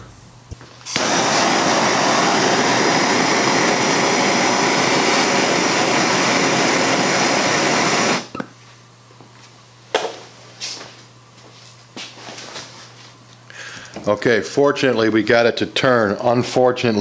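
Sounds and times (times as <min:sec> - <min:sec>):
gas torch hissing: 0:00.8 - 0:08.5.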